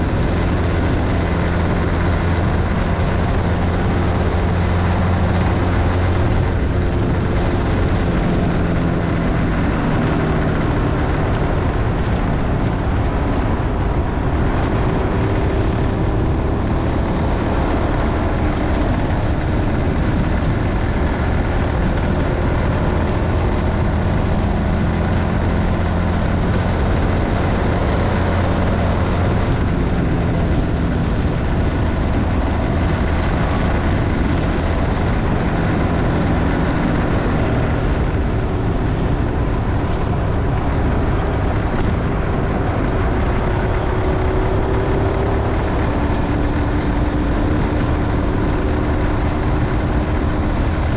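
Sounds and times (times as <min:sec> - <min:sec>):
motorcycle engine running: 0:00.0 - 0:50.9
wind and road noise: 0:00.0 - 0:50.9.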